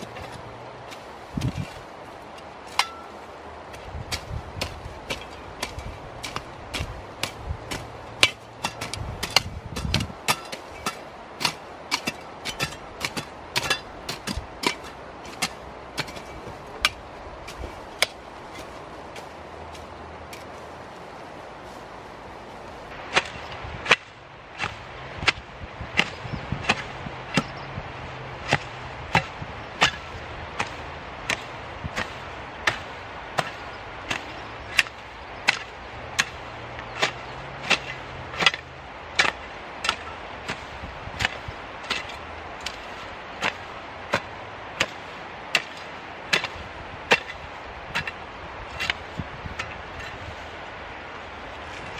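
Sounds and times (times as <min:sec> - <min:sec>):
hoe chopping into soil: 0:23.1 - 0:27.6, 0:28.4 - 0:50.4.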